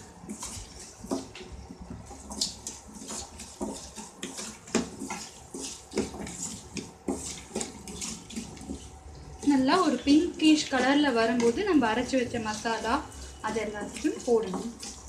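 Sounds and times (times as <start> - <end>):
spatula scraping a pan: 0.0 - 15.0
onions sizzling in oil: 9.4 - 15.0.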